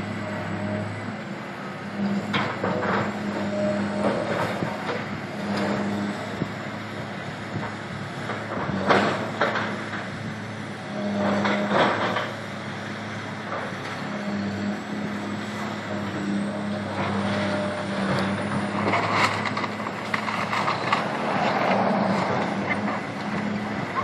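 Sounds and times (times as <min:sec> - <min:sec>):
excavator diesel engine running: 0:00.0 - 0:24.0.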